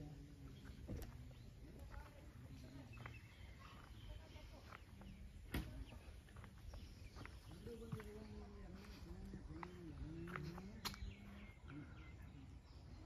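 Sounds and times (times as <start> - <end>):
bird chirps: 0.0 - 13.0
faint distant voices: 0.0 - 13.0.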